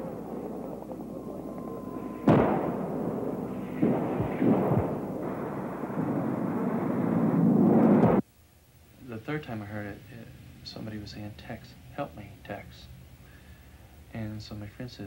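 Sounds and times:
explosions with rumble: 0.0 - 8.2.

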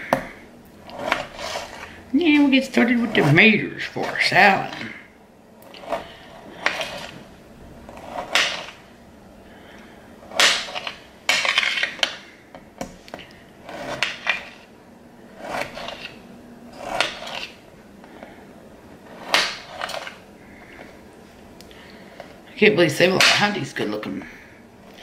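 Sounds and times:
knife slicing on cutting board: 15.4 - 16.2.

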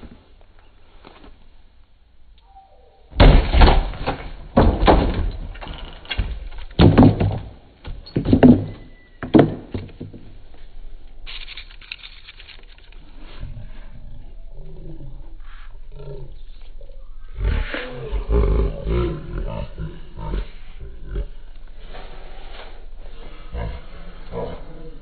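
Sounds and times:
loud thuds and bangs: 3.2 - 5.5
wooden cabinet cracking: 3.2 - 10.2.

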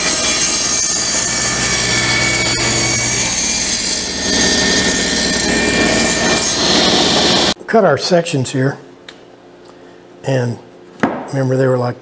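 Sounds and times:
table saw cutting wood: 0.0 - 7.6.

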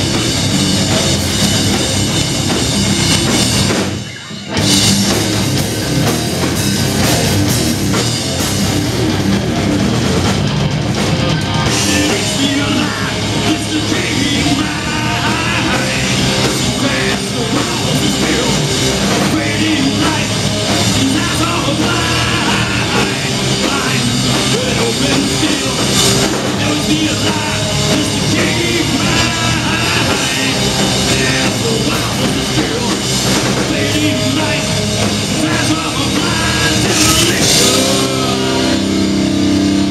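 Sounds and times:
bass guitar: 0.0 - 39.9
drum kit: 0.0 - 39.9
electric guitar: 0.0 - 39.9
man singing: 11.7 - 39.2.

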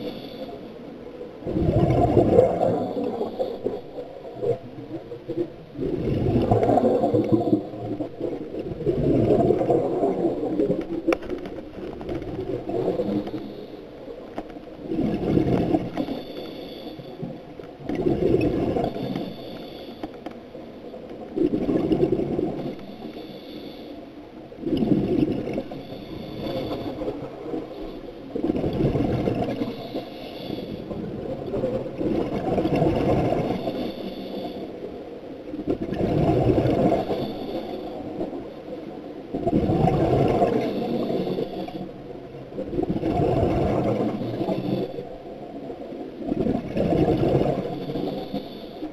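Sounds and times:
scuba exhaled bubbles gurgling: 0.0 - 19.7, 20.5 - 23.7, 24.5 - 48.9.

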